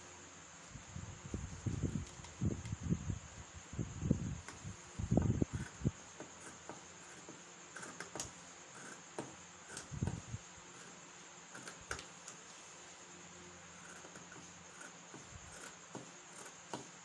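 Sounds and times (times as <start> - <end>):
scissors snipping fabric: 6.4 - 10.2.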